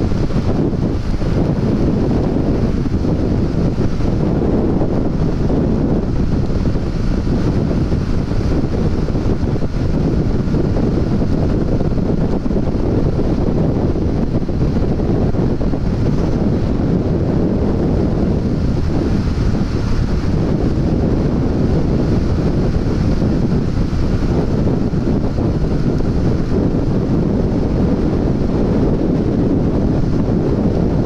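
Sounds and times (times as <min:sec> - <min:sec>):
road noise: 0:00.0 - 0:31.0
wind rush over microphone: 0:00.0 - 0:31.0.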